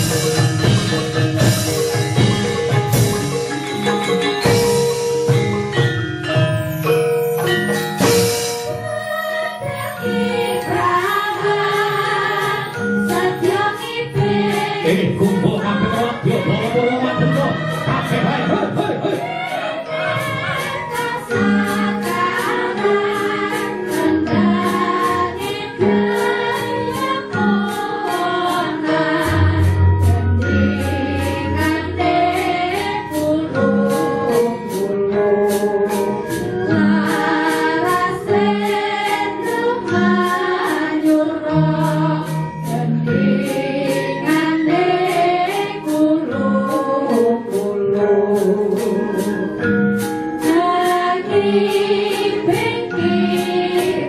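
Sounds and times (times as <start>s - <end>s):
gamelan: 0.0s - 54.0s
women singing in unison: 8.6s - 49.6s, 50.4s - 54.0s.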